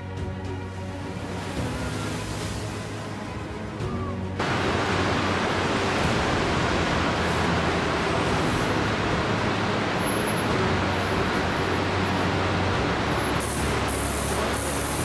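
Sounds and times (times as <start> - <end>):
machinery hiss: 13.0 - 15.0.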